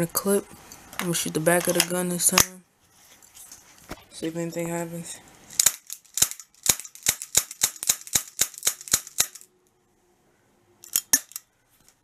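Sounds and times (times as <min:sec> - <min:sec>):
bb pistol firing sharp shots: 0:05.6 - 0:09.5
sharp clicks: 0:05.6 - 0:09.5.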